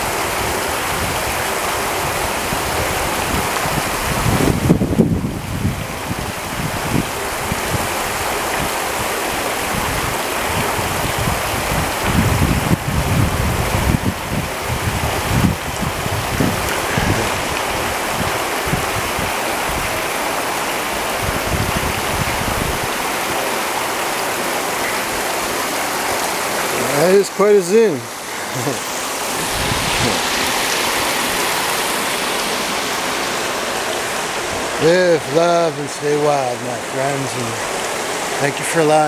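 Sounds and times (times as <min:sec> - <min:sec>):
creek babbling over stones: 0:00.0 - 0:39.0
low buffeting on microphone: 0:00.1 - 0:23.2, 0:27.8 - 0:35.6.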